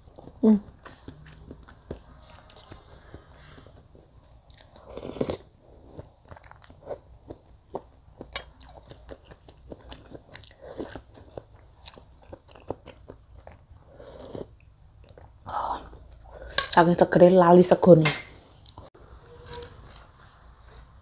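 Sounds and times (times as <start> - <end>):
wet chewing and mouth smacks: 4.4 - 16.6
person slurping soup: 13.8 - 14.6.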